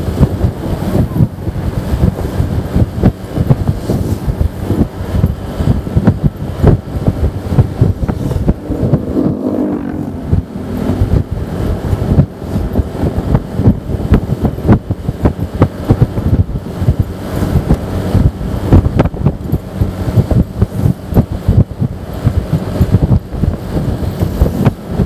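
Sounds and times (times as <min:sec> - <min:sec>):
steady pitched drone: 0:00.0 - 0:15.6
wind buffeting microphone: 0:00.0 - 0:25.0.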